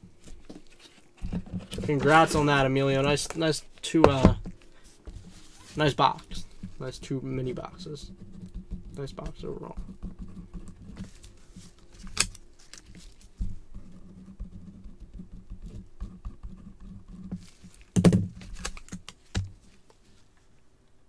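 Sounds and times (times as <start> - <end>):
gloved hands rustling packaging: 0.1 - 14.2, 17.3 - 20.4
pen scratching on paper: 5.1 - 11.7, 13.7 - 17.4.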